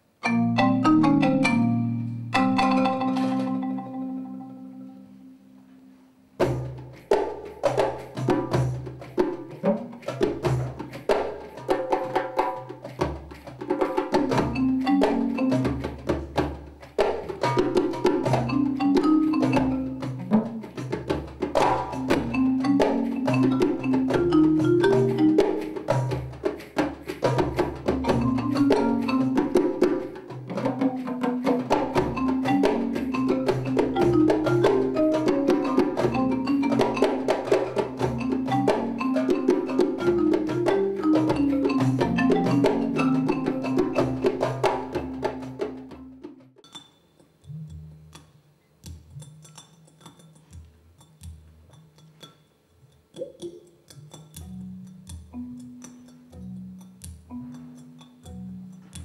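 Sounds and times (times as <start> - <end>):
marimba runs: 0.2 - 7.0, 7.6 - 46.8, 53.3 - 59.0
light percussion clicks and taps: 6.7 - 30.6, 46.6 - 59.0
wooden percussion clicks: 12.8 - 16.4, 21.6 - 30.1, 31.9 - 45.6, 46.6 - 59.0.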